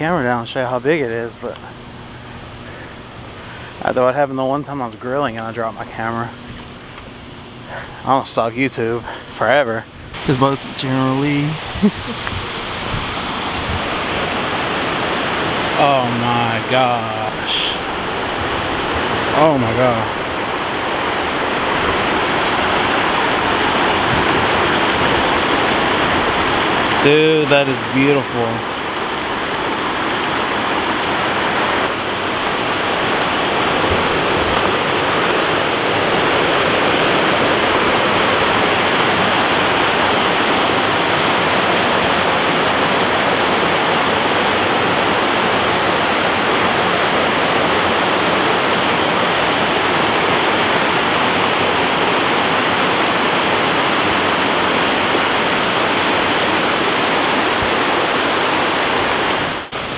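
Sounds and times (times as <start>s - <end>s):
water rushing over rocks: 10.1s - 59.9s
small waterfall pouring: 10.2s - 59.9s.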